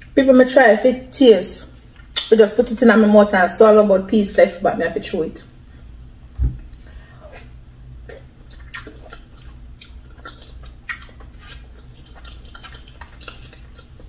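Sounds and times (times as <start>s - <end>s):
mouth clicks and smacks: 2.0s - 2.3s, 8.0s - 14.0s
person chewing with mouth clicks: 6.7s - 14.0s.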